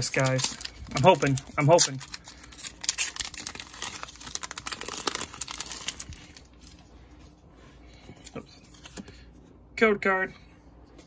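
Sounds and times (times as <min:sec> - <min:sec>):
foil wrapper crinkling and tearing: 0:00.0 - 0:06.9.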